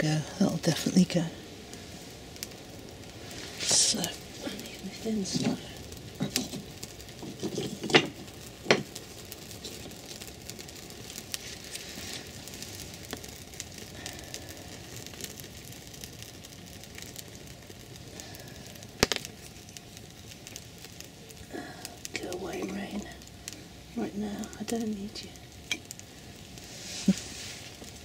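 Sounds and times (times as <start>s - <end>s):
fire crackling and hissing: 0.0s - 28.0s
sharp wood cracks: 5.4s - 22.2s.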